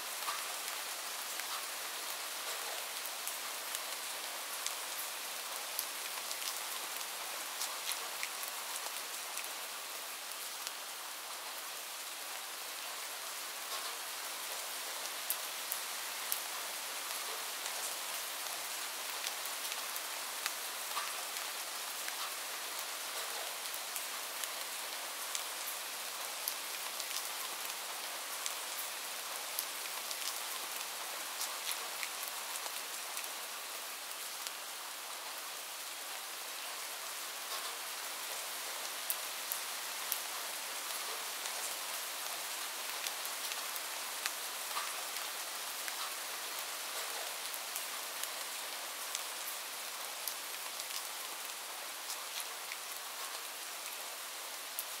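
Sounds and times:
steady rain falling: 0:00.0 - 0:55.0
raindrop ticks: 0:44.2 - 0:45.0.

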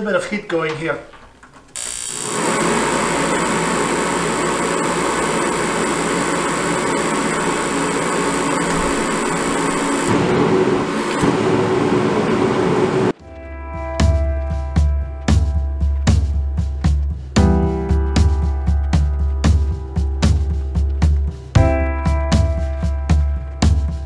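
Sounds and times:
forced-air heater running: 0:01.8 - 0:13.2
music: 0:13.2 - 0:24.0.

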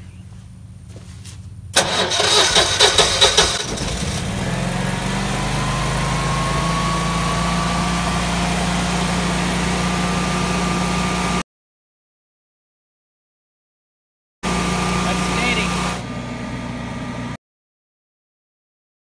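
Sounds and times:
generator engine starting and running: 0:00.0 - 0:11.4, 0:14.4 - 0:17.4.

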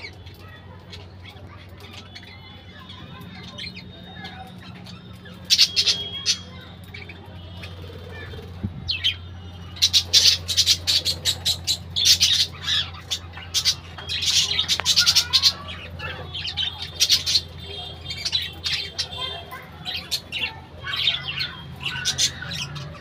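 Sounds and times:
parakeets squawking and chirping: 0:00.0 - 0:23.0.

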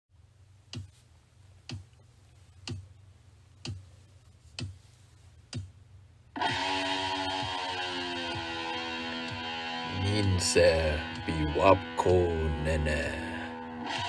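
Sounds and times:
low steady hum: 0:00.2 - 0:06.4
distorted electric guitar chord: 0:06.4 - 0:14.0.

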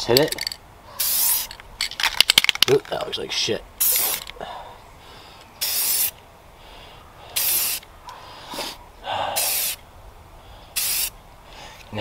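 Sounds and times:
aerosol spray can bursts: 0:01.0 - 0:01.5, 0:05.6 - 0:06.2, 0:07.4 - 0:07.8, 0:09.4 - 0:09.8, 0:10.8 - 0:11.1.

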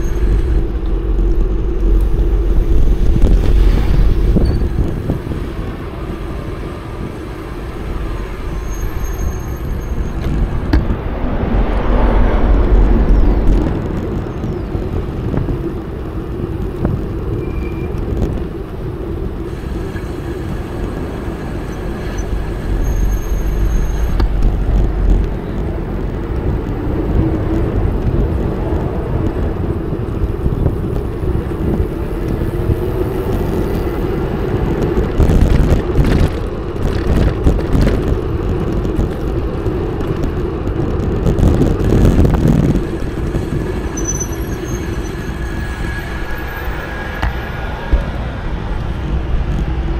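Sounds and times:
wind on microphone: 0:00.0 - 0:49.9.

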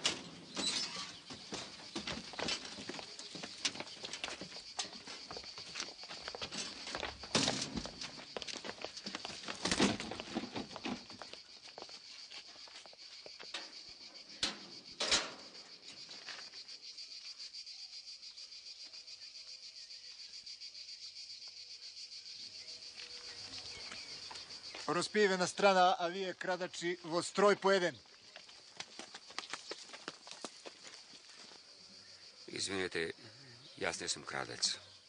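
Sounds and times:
shuffling footsteps and clatter: 0:00.0 - 0:16.6, 0:27.3 - 0:31.6
crickets chirping: 0:00.0 - 0:35.0.

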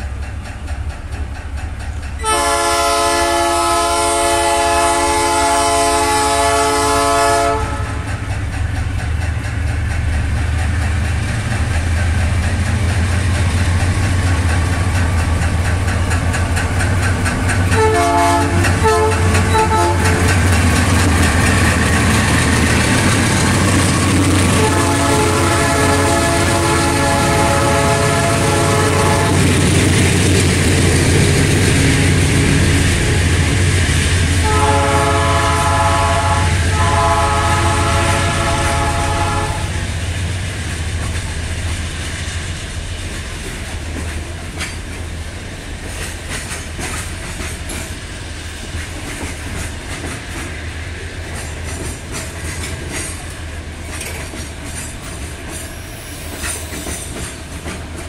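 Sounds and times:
train wheels clickety-clack: 0:00.0 - 0:58.0
locomotive horn: 0:02.2 - 0:08.1, 0:17.7 - 0:20.3, 0:24.5 - 0:29.6, 0:34.4 - 0:39.9.

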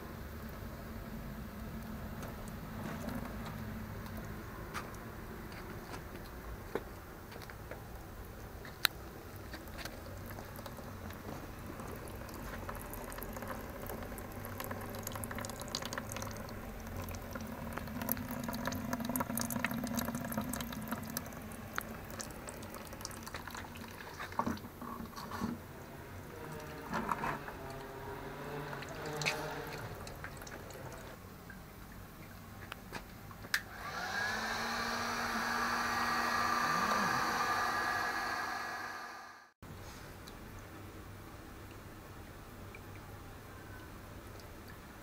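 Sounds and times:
melted wax dripping into bucket: 0:01.6 - 0:25.3, 0:28.7 - 0:33.6.

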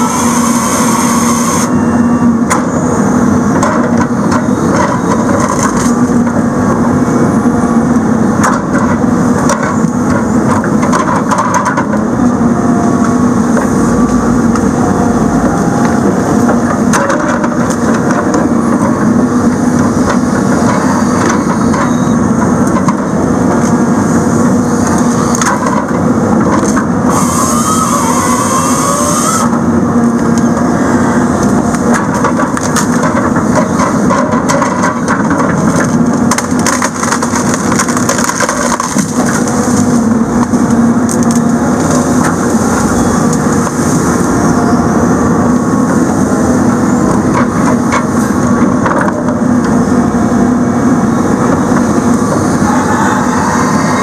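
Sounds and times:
diesel engine and hydraulics: 0:00.0 - 0:54.0
branches cracking and snapping: 0:34.1 - 0:43.8.

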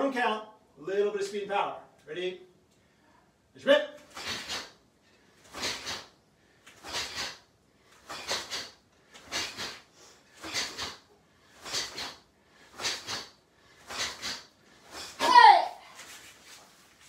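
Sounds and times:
punch whooshes of clothing and breath: 0:05.4 - 0:15.5.

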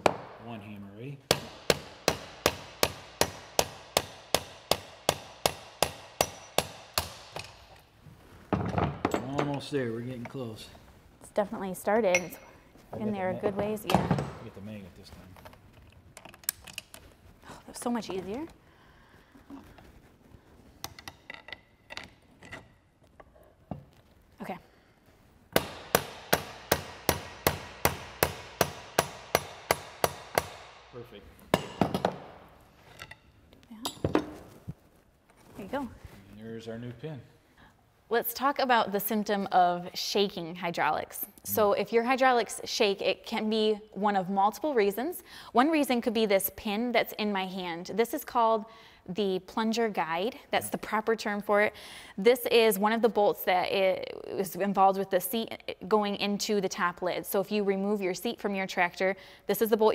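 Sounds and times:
hammer striking metal pin: 0:01.3 - 0:07.8, 0:12.1 - 0:12.6, 0:25.6 - 0:30.8, 0:31.5 - 0:32.2
light metallic clinks and taps: 0:12.1 - 0:12.6, 0:33.8 - 0:34.3.

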